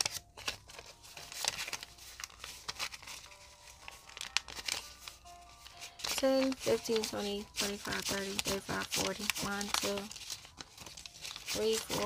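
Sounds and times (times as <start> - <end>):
banknotes rustling and snapping: 0.0 - 12.0.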